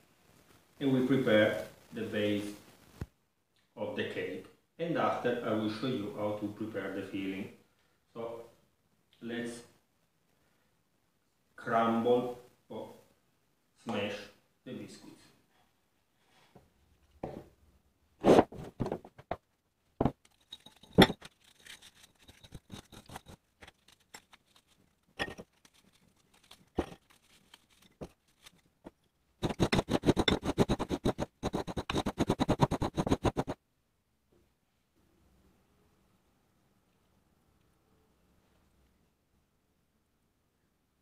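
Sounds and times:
biscuits crunching: 0:20.2 - 0:28.8.

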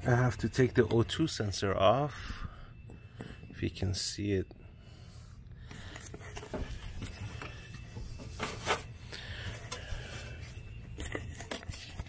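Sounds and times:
rubbing and scraping handling: 0:05.8 - 0:12.0.

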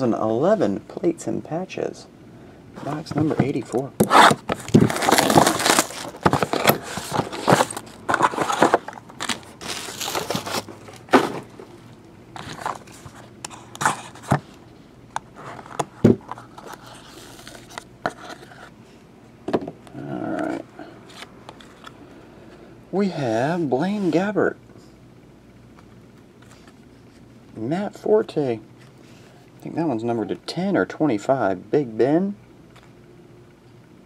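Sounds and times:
knife cutting plastic wrap: 0:04.0 - 0:11.3
plastic wrap crinkling and tearing: 0:04.1 - 0:11.1.

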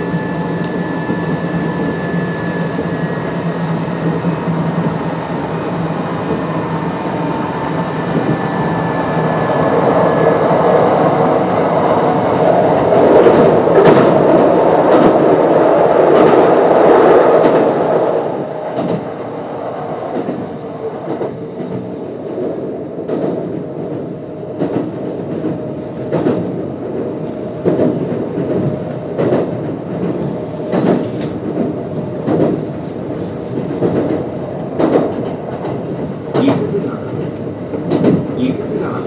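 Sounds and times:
steady train hum: 0:00.0 - 0:39.0
train wheel and rail rumble: 0:00.0 - 0:39.0
rail-joint clacks: 0:24.6 - 0:26.6, 0:27.6 - 0:32.8, 0:33.5 - 0:39.0.

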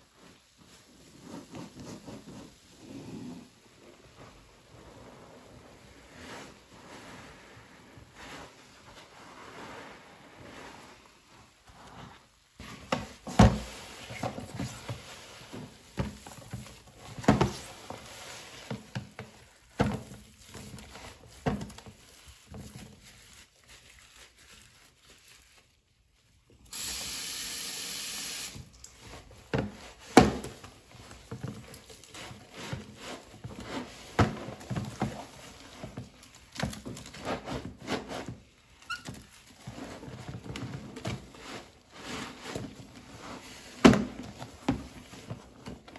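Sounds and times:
sponge squelching in suds: 0:00.1 - 0:12.8
steady hiss: 0:26.7 - 0:28.6.

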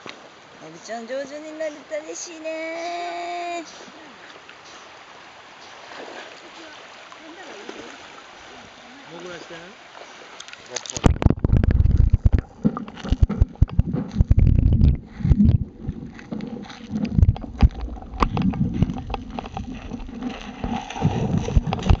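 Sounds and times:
camera handling rumble and knocks: 0:10.8 - 0:22.0.

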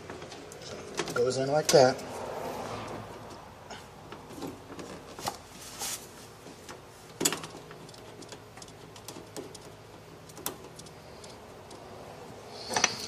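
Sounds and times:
metal nut clicking and tapping: 0:07.2 - 0:11.8.

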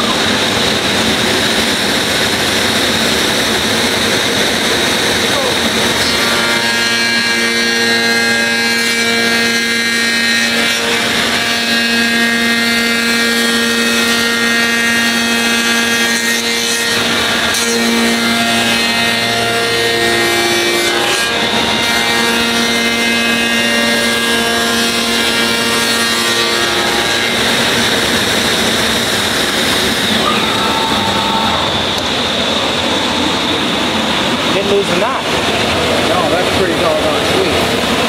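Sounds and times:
cutter hissing through wood: 0:00.0 - 0:30.3
machine spindle whine: 0:00.0 - 0:38.0.

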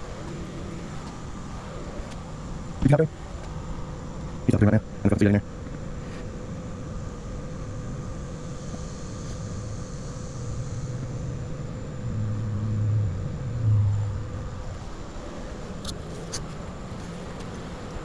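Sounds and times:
faint steady hum: 0:00.0 - 0:18.0
low background rumble: 0:06.6 - 0:18.0.

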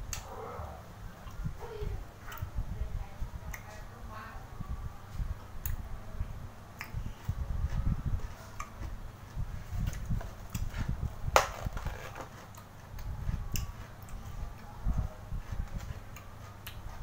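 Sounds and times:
person chewing food: 0:15.3 - 0:17.0.

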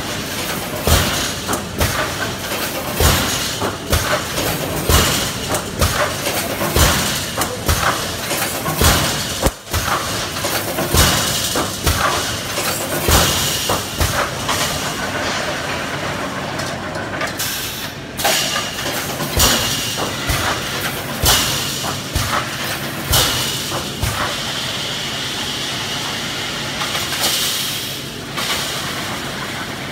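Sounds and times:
welding machine knock: 0:00.8 - 0:14.7.

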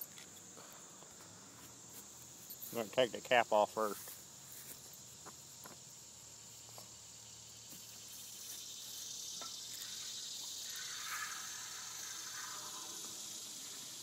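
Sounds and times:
high hiss: 0:00.0 - 0:14.0
insects chirring: 0:00.0 - 0:14.0.

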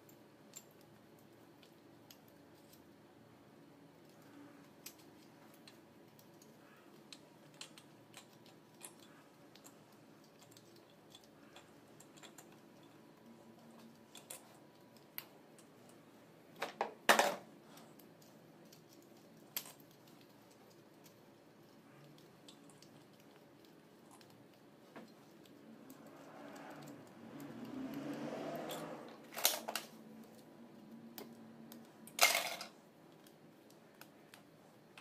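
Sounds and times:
small metal clicks and taps: 0:04.0 - 0:16.0.

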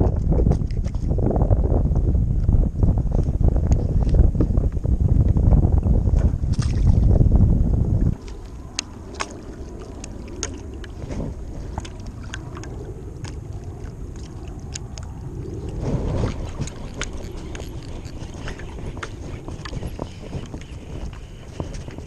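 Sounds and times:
water lapping against a board: 0:00.0 - 0:01.2, 0:06.1 - 0:07.2, 0:08.1 - 0:22.0
wind rumbling on microphone: 0:00.0 - 0:22.0.

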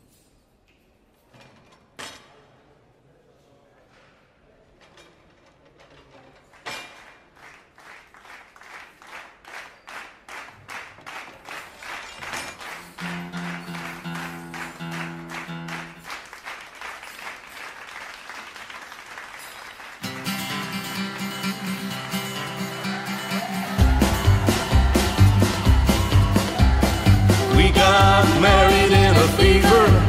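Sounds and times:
audience clapping in time: 0:06.9 - 0:30.0.

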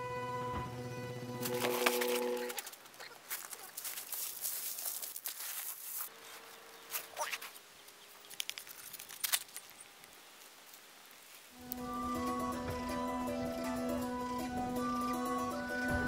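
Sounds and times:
pebbles crunching under hands: 0:01.4 - 0:10.2
sharp scrapes and clicks: 0:08.2 - 0:09.8.

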